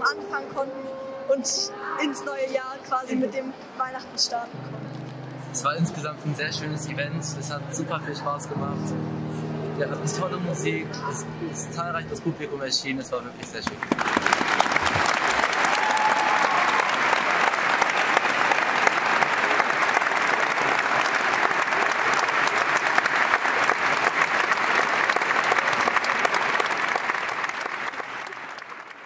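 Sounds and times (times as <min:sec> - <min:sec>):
large audience applauding: 0:13.6 - 0:29.0.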